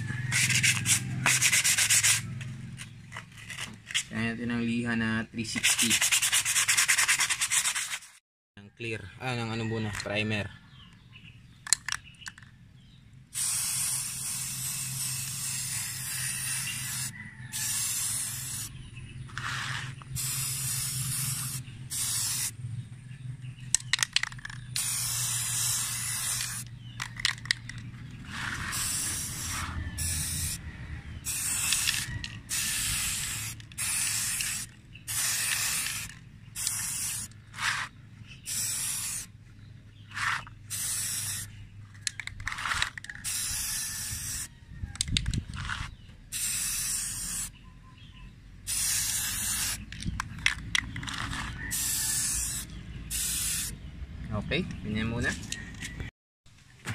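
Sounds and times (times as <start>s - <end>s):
aerosol spray can hissing: 0.3s - 2.2s, 13.4s - 18.7s, 19.4s - 22.5s, 24.8s - 26.6s, 28.3s - 30.6s, 31.2s - 39.3s, 40.1s - 41.5s, 43.2s - 44.5s, 46.3s - 47.5s, 48.7s - 49.9s, 51.3s - 53.7s.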